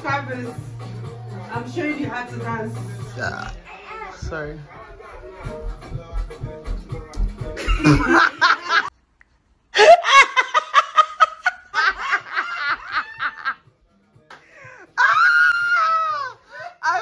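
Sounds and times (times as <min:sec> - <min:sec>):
dance music with thumping beat: 0:04.2 - 0:08.4
people laughing loudly: 0:07.6 - 0:08.9, 0:09.8 - 0:13.6.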